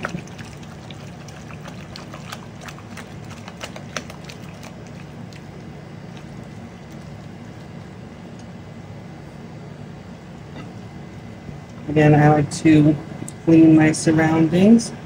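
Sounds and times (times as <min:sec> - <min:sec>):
spatula stirring in glass bowl: 0:00.0 - 0:07.8
steady low hum: 0:00.0 - 0:15.0.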